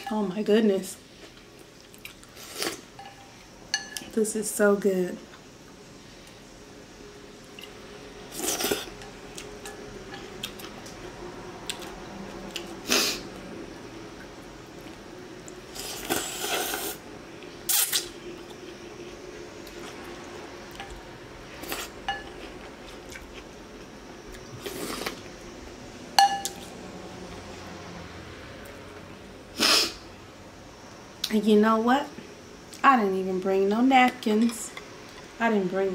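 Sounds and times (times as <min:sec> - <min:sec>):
slurping noodles and broth: 0:08.3 - 0:08.9, 0:15.7 - 0:17.0.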